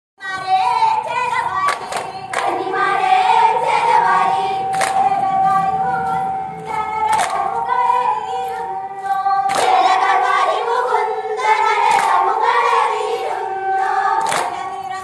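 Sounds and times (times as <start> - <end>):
female voices singing in unison: 0.2 - 15.0
hand claps: 1.6 - 2.6, 4.7 - 5.0, 7.0 - 7.5, 9.5 - 9.8, 14.2 - 14.6.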